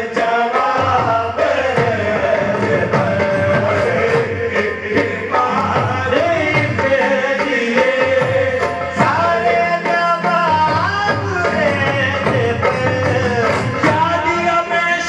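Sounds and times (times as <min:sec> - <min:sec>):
hand drums beating: 0:00.0 - 0:14.4.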